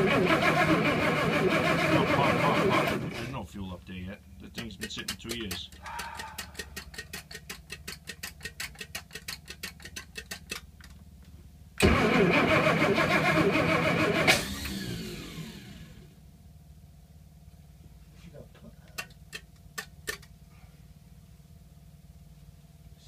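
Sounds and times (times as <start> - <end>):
engine spinning down: 0.0 - 3.4, 11.8 - 16.2.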